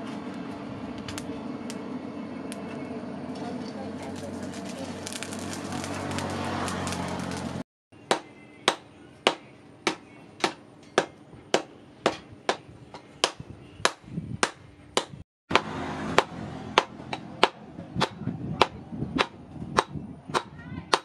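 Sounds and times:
forge fire rushing: 0.4 - 7.6.

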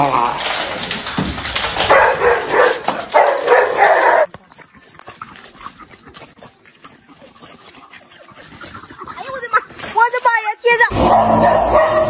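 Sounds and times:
dog barking: 1.8 - 4.3, 11.0 - 12.0.

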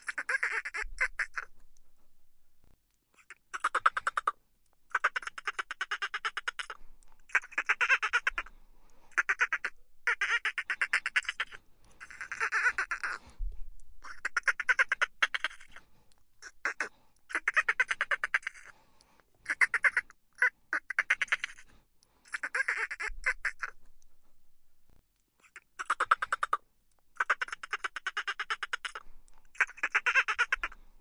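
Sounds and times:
dolphins chattering: 3.2 - 8.5, 9.1 - 13.2, 14.0 - 15.8, 22.3 - 23.8, 27.2 - 30.8.

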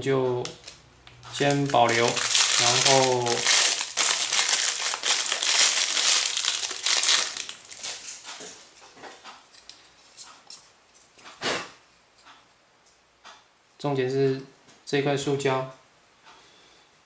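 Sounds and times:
plastic bag crinkling: 0.4 - 8.6.

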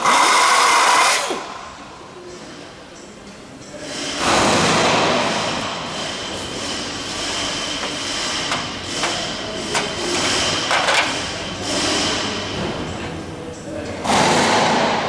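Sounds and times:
pneumatic air drill: 0.0 - 1.5.

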